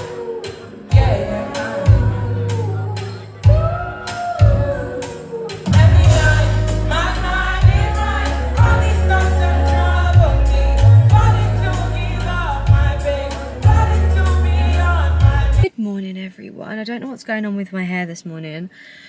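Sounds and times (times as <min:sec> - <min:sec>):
live band playing: 0:00.0 - 0:15.7
person singing: 0:00.0 - 0:15.7
deep bass notes: 0:00.9 - 0:04.8, 0:05.7 - 0:15.7.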